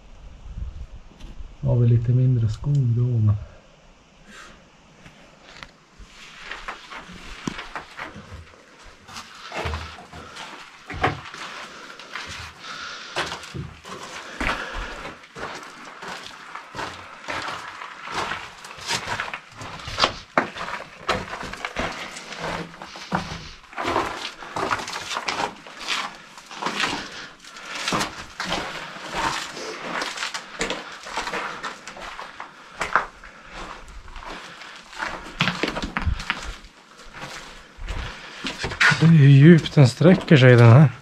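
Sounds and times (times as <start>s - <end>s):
footsteps crunching on gravel: 5.1s - 40.9s.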